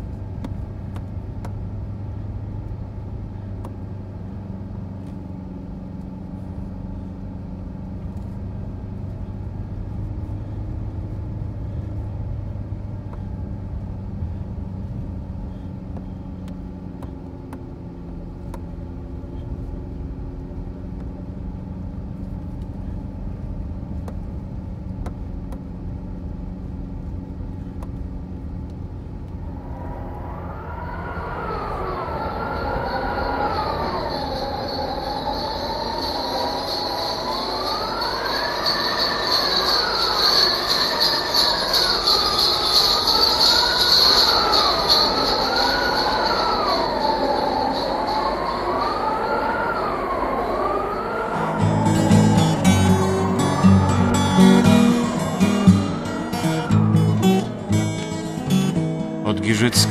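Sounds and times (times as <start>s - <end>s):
car engine drone: 0.0s - 59.9s
high wavering squeal: 29.3s - 59.9s.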